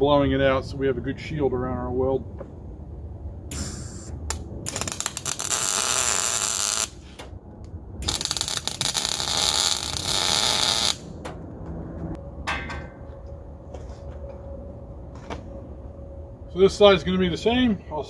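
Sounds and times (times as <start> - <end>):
welding arc crackling sizzle: 3.5 - 7.2, 8.0 - 11.1.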